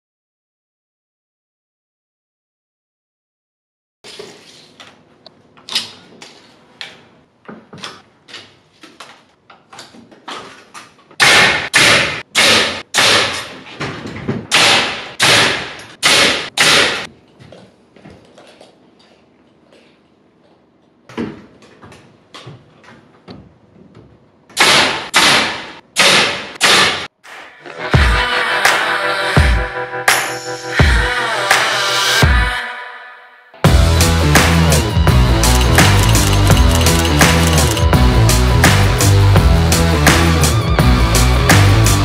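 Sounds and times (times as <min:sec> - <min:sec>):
sharp knocks and bangs: 0:11.2 - 0:17.1.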